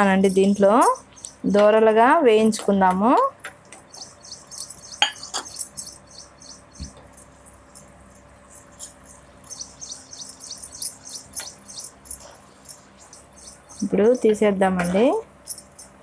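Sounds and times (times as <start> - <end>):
spoon clinking against pan: 5.0 - 5.6.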